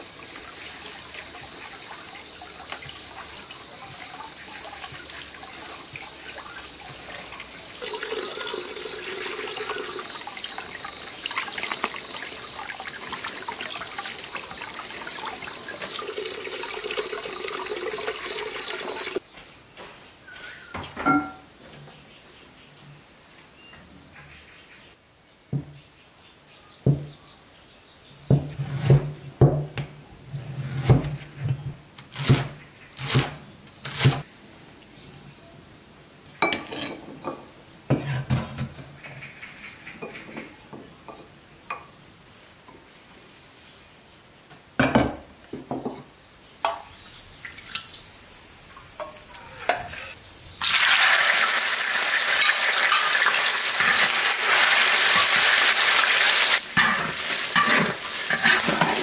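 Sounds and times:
tofu sizzling in hot oil: 50.6 - 58.9.

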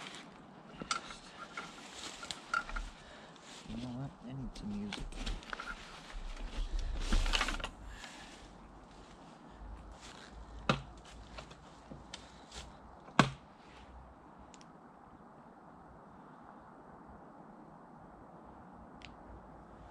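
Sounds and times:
bag rustling: 4.8 - 9.3.

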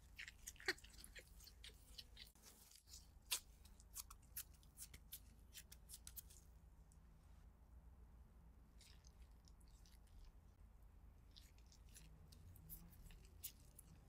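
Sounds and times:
plastic gloves crinkling: 0.0 - 6.6.

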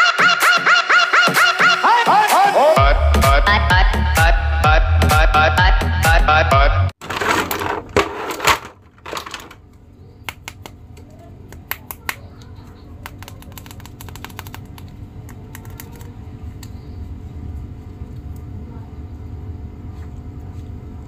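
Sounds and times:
rustling: 7.0 - 9.6
plastic figures clicking and tapping: 10.3 - 16.1.

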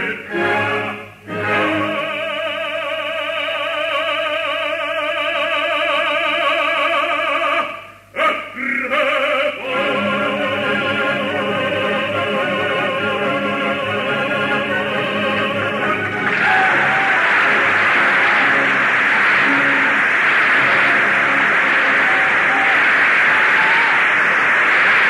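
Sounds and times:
orchestra playing: 0.0 - 2.3, 9.8 - 22.6
opera singer with vibrato: 0.0 - 18.8.

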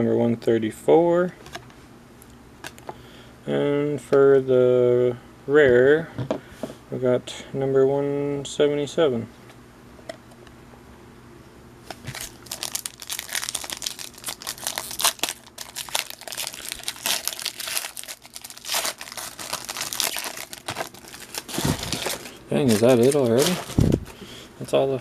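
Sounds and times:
card pack wrapper crinkling: 11.9 - 24.2.

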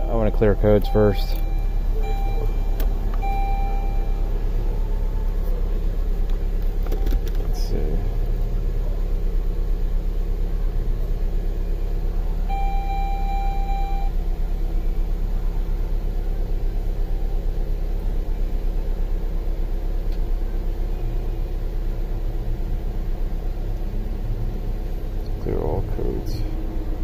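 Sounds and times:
car engine idling: 0.0 - 27.0
short electronic beep: 0.8 - 4.3, 12.5 - 14.1.

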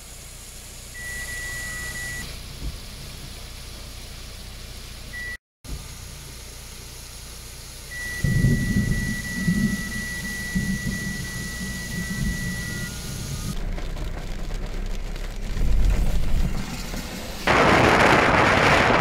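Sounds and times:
high-pitched tone: 7.9 - 13.6
loud low rumble: 8.2 - 19.0.

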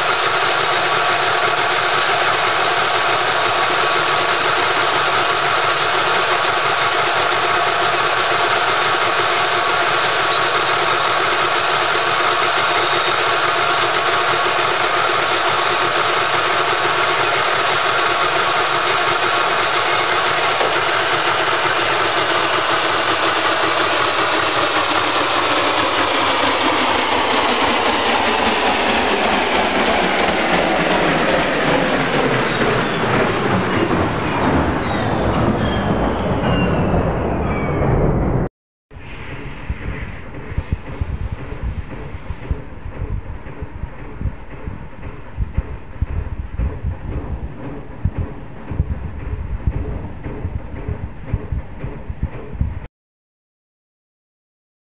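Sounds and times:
metal lathe motor whine: 0.0 - 37.7.

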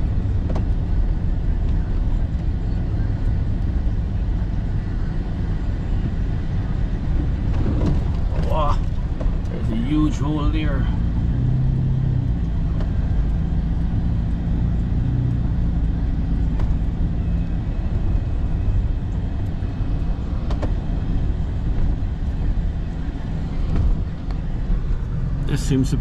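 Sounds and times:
vehicle engine and road rumble: 0.0 - 26.0.

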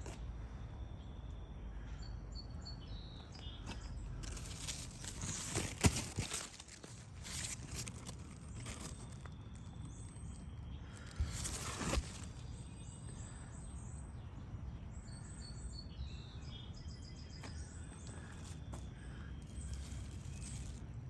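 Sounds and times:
leaves brushing microphone: 4.2 - 9.6, 11.2 - 12.5.

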